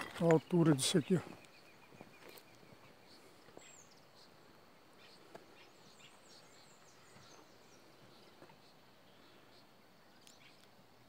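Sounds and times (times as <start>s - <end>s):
faint high bird chirps: 0.0s - 11.0s
faint click: 10.2s - 10.8s.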